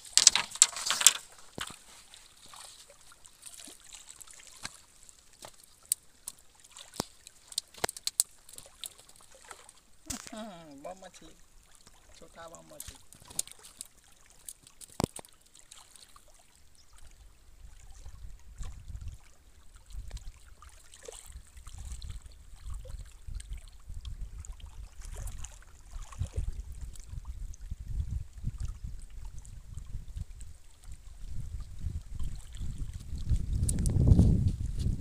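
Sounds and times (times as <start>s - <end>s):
water lapping on rocky shore: 0.0s - 27.6s, 28.4s - 35.0s
wind rumble on microphone: 17.2s - 20.5s, 21.2s - 35.0s.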